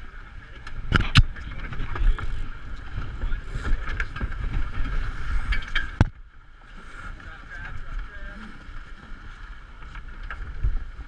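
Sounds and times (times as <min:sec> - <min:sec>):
wind buffeting on microphone: 0:00.0 - 0:06.2
water rushing along a hull: 0:00.0 - 0:11.0.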